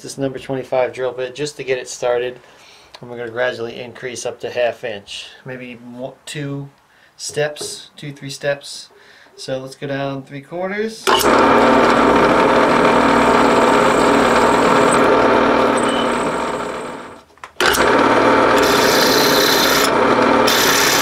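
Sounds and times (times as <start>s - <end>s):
drill bit scraping metal: 11.1s - 17.9s, 18.5s - 21.0s
drill motor humming: 11.1s - 21.0s.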